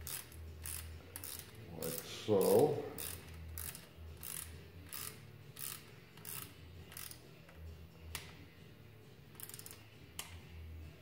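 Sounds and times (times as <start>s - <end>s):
ratchet wrench clicking: 0.0s - 8.4s, 9.3s - 10.4s.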